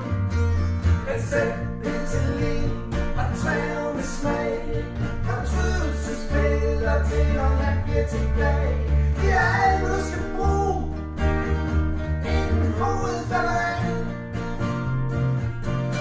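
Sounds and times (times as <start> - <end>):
deep bass: 0.0 - 16.0
strummed acoustic guitars: 0.0 - 16.0
man singing: 1.0 - 11.0, 12.2 - 14.1.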